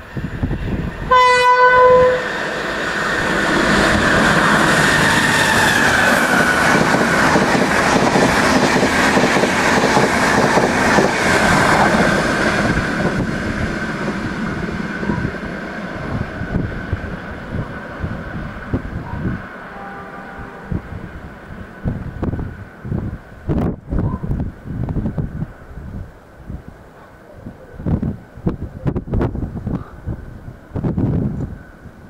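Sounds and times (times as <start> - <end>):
train rushing past: 0.0 - 32.0
train horn: 1.1 - 2.4, 19.6 - 21.1.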